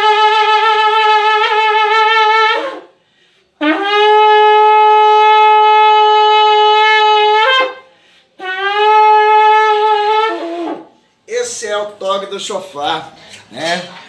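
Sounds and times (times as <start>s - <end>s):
shofar blasts: 0.0s - 3.0s, 3.6s - 11.0s.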